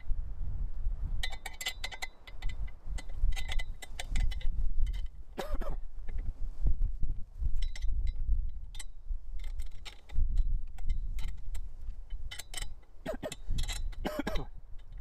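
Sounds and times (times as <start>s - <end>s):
metal clamps clicking: 1.2s - 5.5s, 7.6s - 15.0s.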